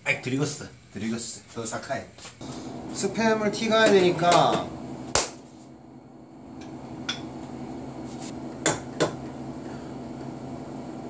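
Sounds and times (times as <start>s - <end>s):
washing machine humming: 2.4s - 11.0s.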